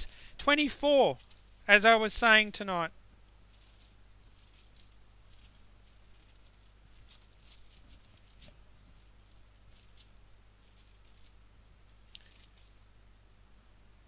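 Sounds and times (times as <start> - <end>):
low electrical hum: 0.0 - 14.0
paper pages rustling: 1.1 - 1.7, 3.3 - 12.8.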